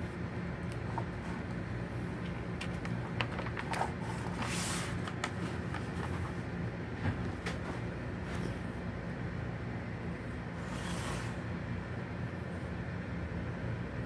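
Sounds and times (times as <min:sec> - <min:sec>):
low mechanical hum: 0:00.0 - 0:14.0
fingers clicking on paper: 0:02.6 - 0:04.4
magazine page turning: 0:02.6 - 0:06.4.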